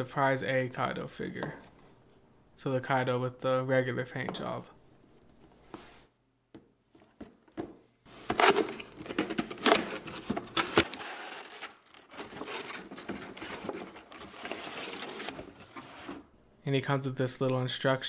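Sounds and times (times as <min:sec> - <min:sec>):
plastic packaging crinkling: 0:08.4 - 0:16.2.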